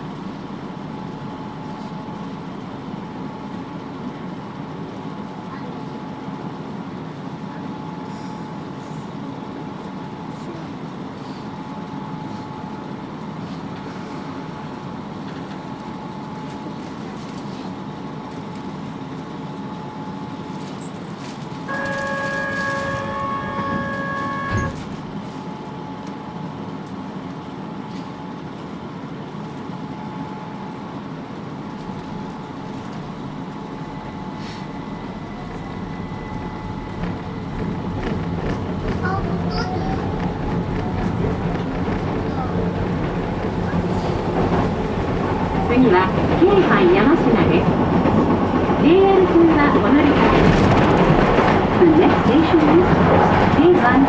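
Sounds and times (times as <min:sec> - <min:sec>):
train wheels rumbling on track: 0:00.0 - 0:54.0
loud steady pitched tone: 0:21.7 - 0:24.9.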